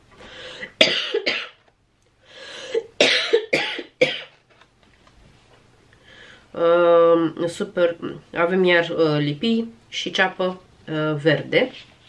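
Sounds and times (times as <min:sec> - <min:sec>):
breath in: 0:00.2 - 0:00.7, 0:02.2 - 0:02.8, 0:06.0 - 0:06.5
woman coughing: 0:00.8 - 0:01.6, 0:02.8 - 0:04.4.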